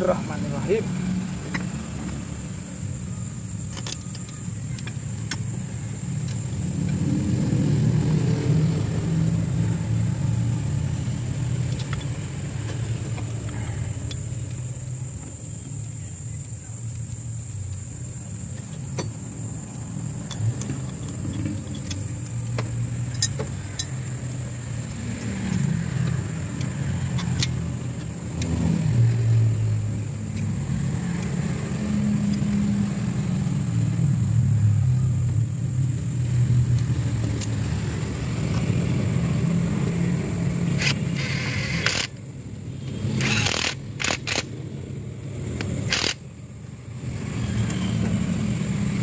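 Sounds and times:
vehicle engine rumbling: 0.0 - 49.0
metallic clicks: 3.6 - 5.6, 11.5 - 14.7, 16.9 - 28.6.

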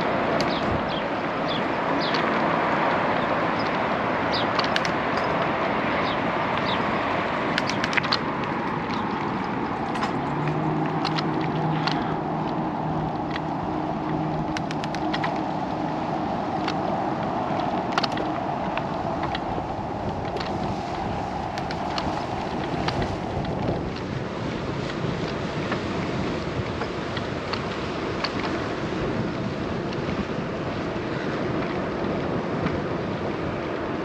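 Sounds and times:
wind and bicycle tyre noise: 0.0 - 34.0
bicycle clicks and rattles: 4.4 - 6.8, 7.4 - 30.2.

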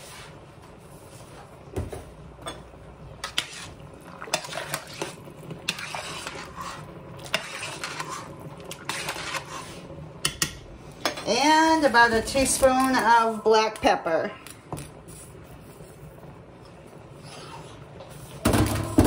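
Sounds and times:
spoon clinking and scraping pot: 2.5 - 11.3.

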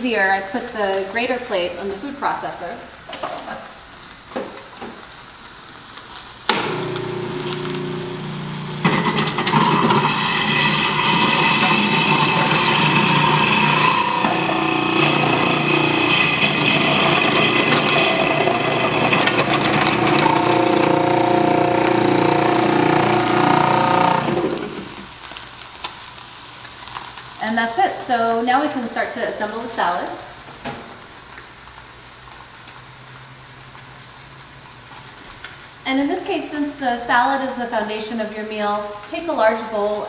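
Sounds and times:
food processor motor humming: 6.5 - 25.1
carrots being shredded: 6.6 - 25.2.

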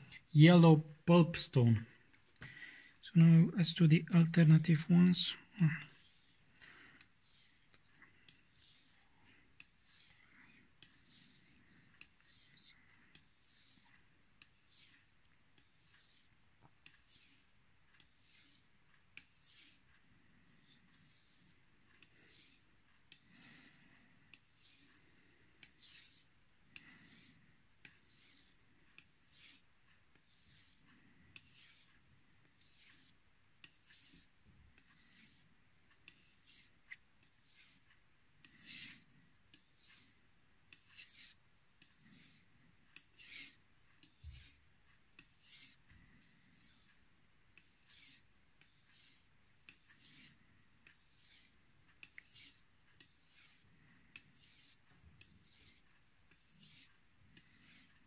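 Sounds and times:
knife scraping on whetstone: 5.9 - 6.4, 7.0 - 7.7, 8.3 - 9.0, 9.6 - 10.2, 10.8 - 18.6, 19.2 - 19.8, 20.6 - 23.6, 25.6 - 29.6, 30.2 - 30.8, 31.4 - 34.2, 34.8 - 35.4, 36.1 - 36.7, 37.4 - 37.8, 38.4 - 40.1, 40.7 - 42.4, 43.0 - 44.6, 45.2 - 47.0, 47.6 - 57.9.

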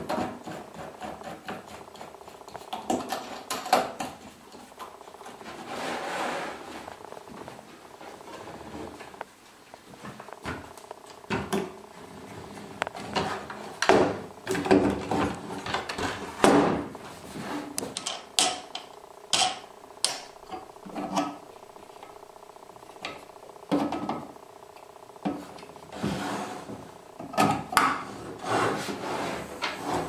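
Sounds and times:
wooden knocks and scrapes: 25.2 - 30.0.

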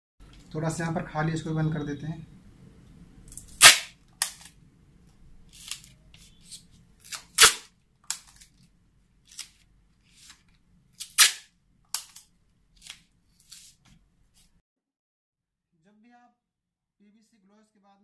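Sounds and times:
tape ripping: 3.3 - 4.6, 5.5 - 8.6, 9.3 - 9.6, 11.0 - 13.8.

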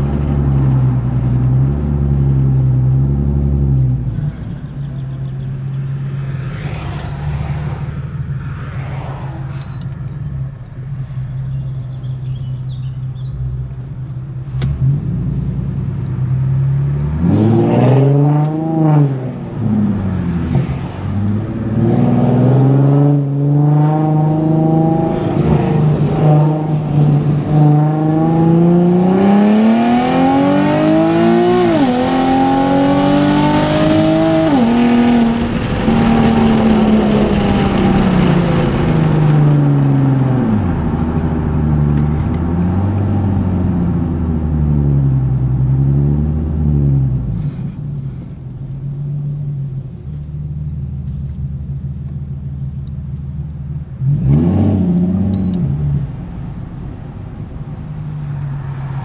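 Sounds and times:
car engine revving: 0.0 - 59.0
engine pitch dropping at upshifts: 16.5 - 51.4, 53.6 - 59.0.

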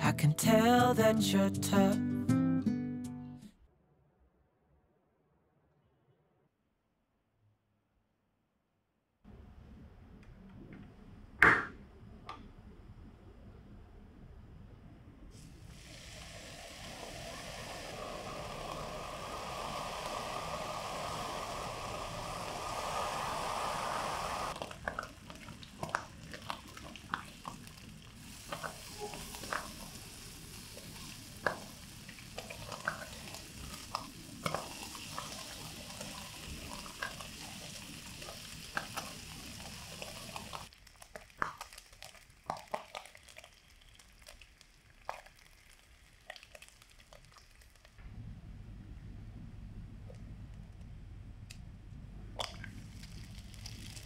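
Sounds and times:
bacon sizzling in pan: 15.7 - 48.0, 52.6 - 54.0
fat popping: 41.0 - 43.5.

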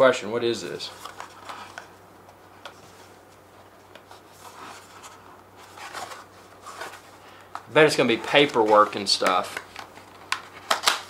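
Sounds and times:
cardboard rubbing and scraping: 4.0 - 7.1.

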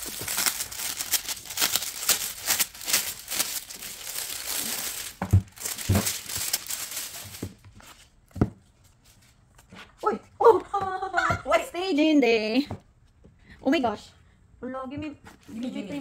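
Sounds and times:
packaging crinkling and tearing: 0.0 - 7.6.

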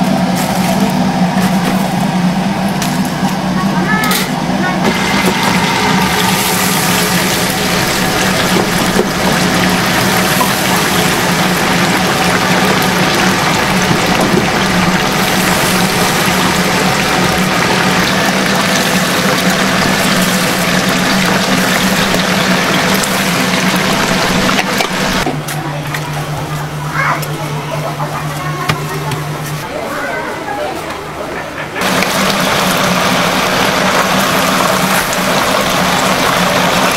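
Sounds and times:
oil bubbling and sizzling: 4.8 - 25.3, 31.8 - 36.9.

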